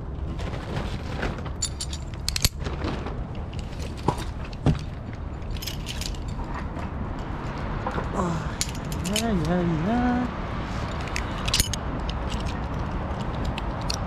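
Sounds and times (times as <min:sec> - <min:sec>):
metal hardware jangling: 0:01.6 - 0:02.6, 0:03.5 - 0:07.6, 0:08.4 - 0:09.7, 0:10.9 - 0:14.0.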